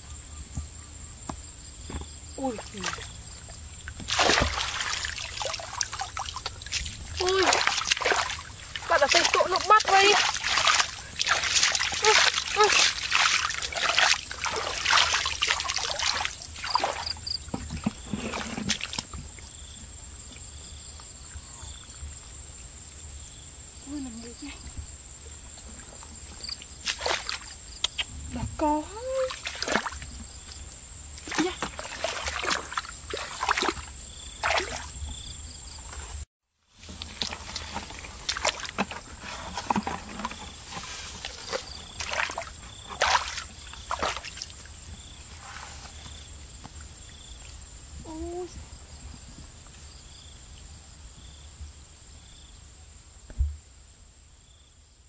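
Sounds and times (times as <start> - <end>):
high insect whine: 0.0 - 36.2, 37.2 - 53.4
water trickling: 2.4 - 17.5, 36.8 - 44.8
muddy water splashing: 2.4 - 19.5, 25.5 - 35.1, 36.8 - 47.6
squelches of wading in mud: 2.4 - 22.6, 23.8 - 36.0, 36.7 - 48.5.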